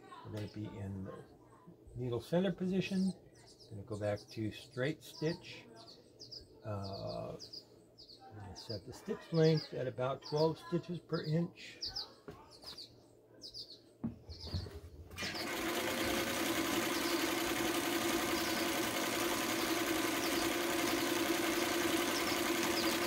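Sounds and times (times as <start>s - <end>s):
sewing machine running: 15.2s - 23.0s.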